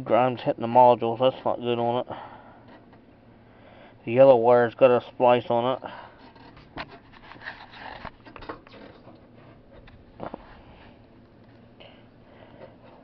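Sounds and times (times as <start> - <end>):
rustling and clicks of wires: 5.6 - 11.9.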